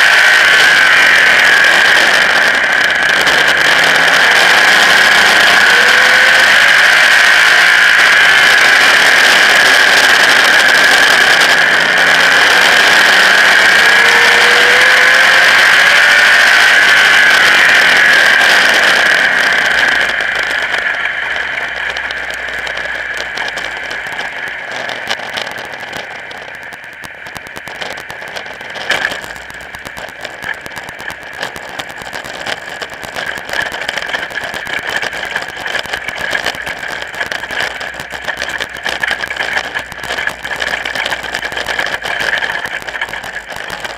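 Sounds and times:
race car engine running: 0.0 - 43.9.

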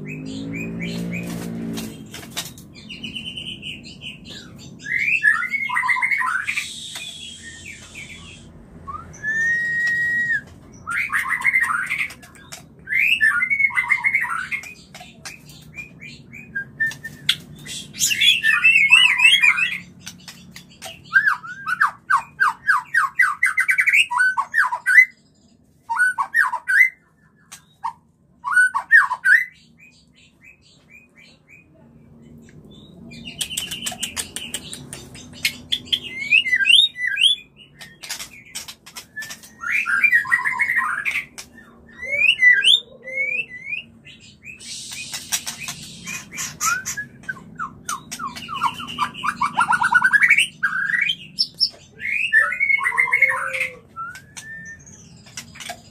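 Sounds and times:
bird whistled song: 2.8 - 25.2, 25.9 - 31.6, 32.7 - 55.9
bird harsh rasp: 44.6 - 47.1.

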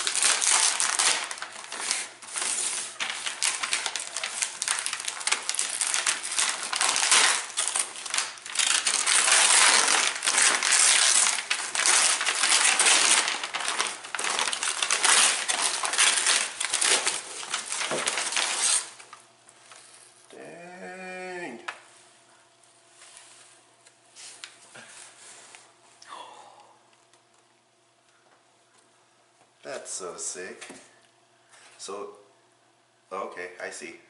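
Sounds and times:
wrapping paper crumpling and tearing: 0.0 - 19.2.

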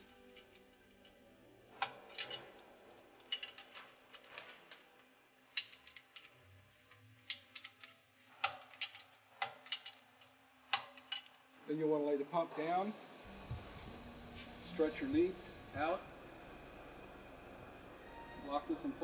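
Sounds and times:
metallic clicks of hand tools: 10.7 - 11.4.

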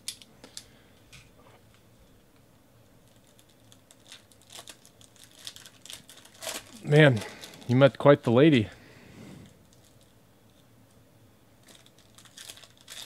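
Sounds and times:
foil wrapper crinkling: 3.0 - 8.7, 11.6 - 13.0.

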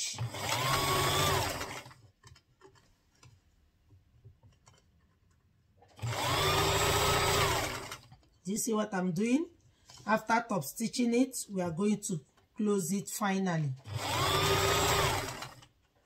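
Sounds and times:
sewing machine motor whine: 0.1 - 2.0, 6.0 - 8.1, 13.8 - 15.7.

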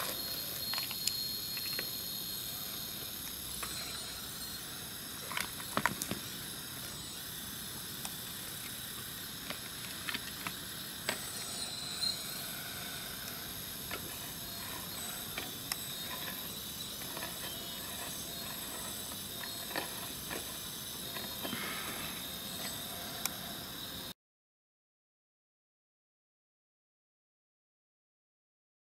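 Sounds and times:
hydraulic pump whine and hiss: 0.0 - 24.2.

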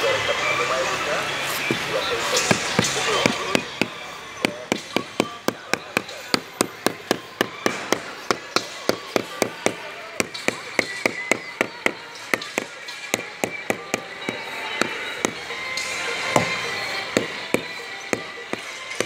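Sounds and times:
rubber mallet tapping tile: 2.5 - 15.4.

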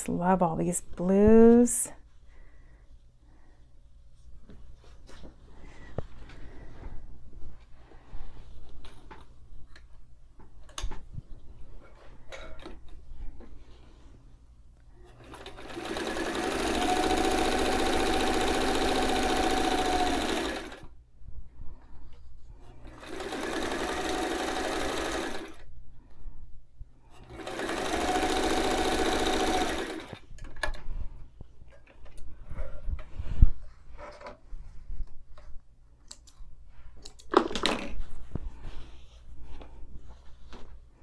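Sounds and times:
sewing machine stitching: 15.1 - 20.9, 22.8 - 25.6, 27.2 - 30.2.

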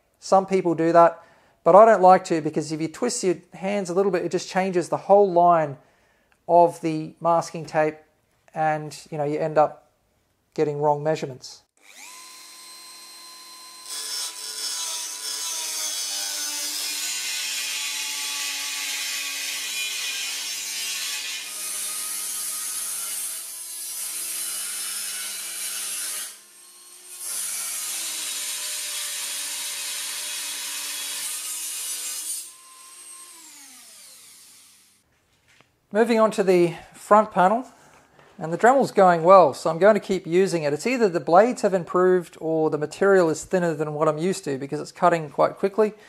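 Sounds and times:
rotary tool high whine: 11.8 - 15.4, 25.8 - 35.0
rotary tool cutting sheet steel: 11.8 - 35.0.

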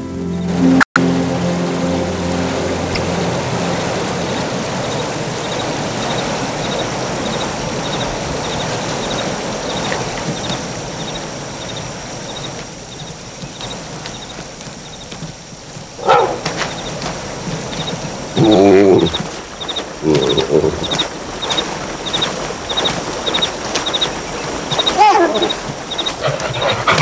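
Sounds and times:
river water rushing: 0.0 - 27.0
faint high chirps: 17.8 - 26.7.

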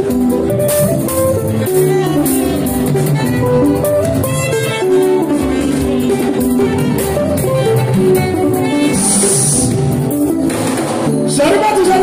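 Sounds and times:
instrumental band music: 0.0 - 12.0.

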